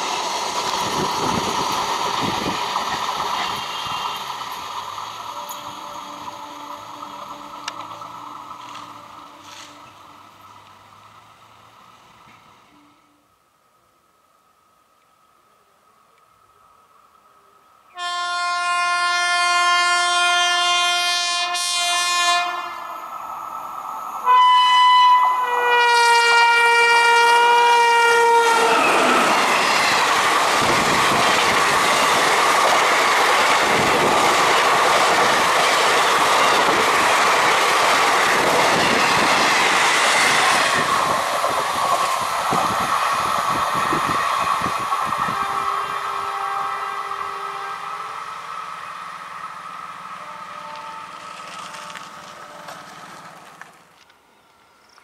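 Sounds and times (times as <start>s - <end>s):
train wheels on rails: 0.0s - 12.8s, 25.0s - 55.0s
locomotive horn blasts: 5.3s - 8.0s, 17.9s - 22.9s, 24.2s - 29.4s, 45.2s - 48.4s, 50.2s - 52.8s.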